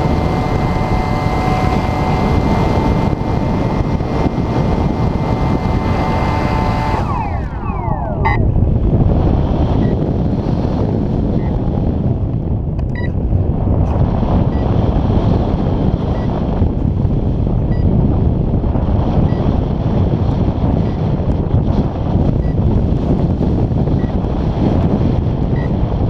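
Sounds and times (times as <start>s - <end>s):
electric motor propeller whine: 0.0s - 11.9s
wind rushing on microphone: 0.0s - 26.0s.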